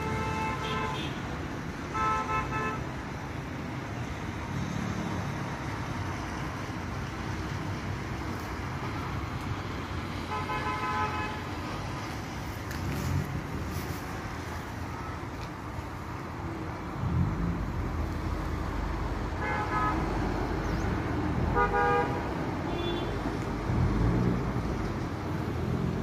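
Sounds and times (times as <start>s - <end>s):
road traffic: 0.0s - 26.0s.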